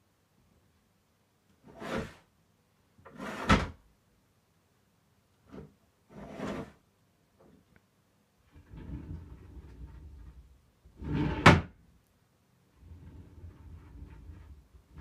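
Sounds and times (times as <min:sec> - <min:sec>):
wooden drawer sliding and scraping: 0:01.6 - 0:02.3, 0:03.1 - 0:03.8, 0:05.5 - 0:06.8, 0:08.5 - 0:11.7, 0:12.8 - 0:15.0.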